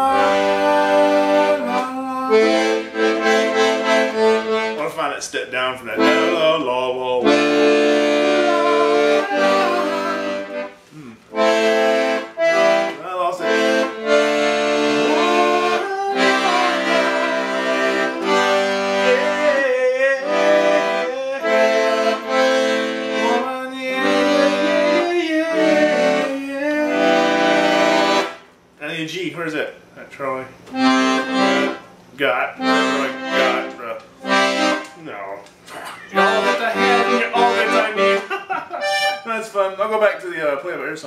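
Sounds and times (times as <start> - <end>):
man singing wordless melody: 0.0 - 3.0, 5.6 - 11.2, 14.9 - 22.5, 23.1 - 27.5
piano accordion playing chords: 0.0 - 5.2, 5.9 - 28.6, 30.7 - 34.9, 36.1 - 40.2.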